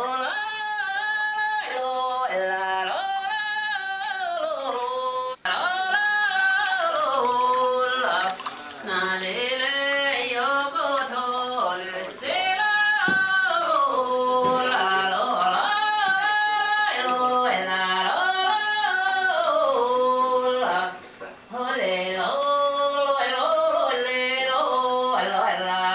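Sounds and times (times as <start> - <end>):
person singing long notes: 0.0 - 25.9.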